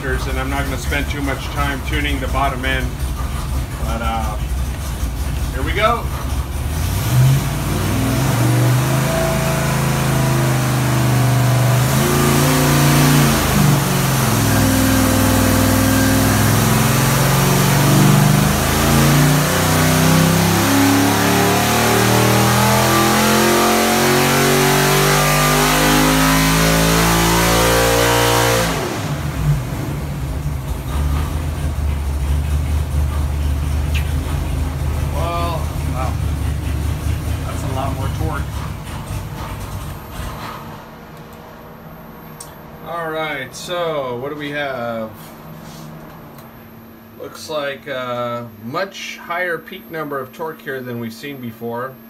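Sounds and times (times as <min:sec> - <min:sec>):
engine revving on dyno: 0:00.0 - 0:40.7.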